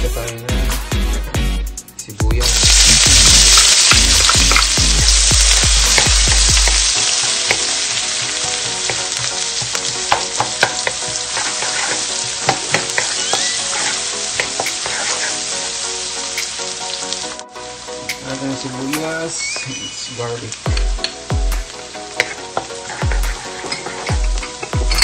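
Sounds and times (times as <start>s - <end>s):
onion sizzling in hot oil: 2.4s - 25.0s
wooden spoon scraping a pan: 7.5s - 15.6s, 22.2s - 25.0s.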